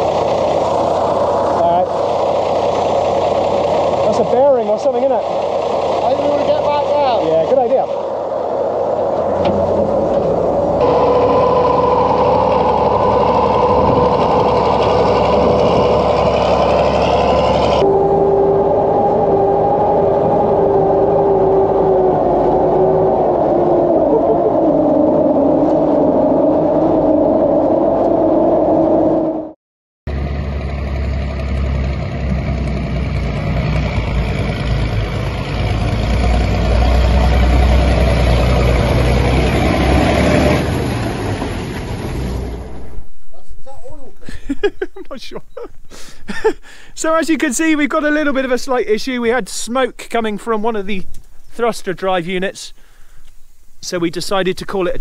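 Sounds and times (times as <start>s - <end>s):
petrol engine running under load: 0.0s - 24.9s, 30.1s - 42.9s
water churning off wheels: 0.0s - 29.0s, 30.1s - 43.0s
steady whine: 0.0s - 49.4s.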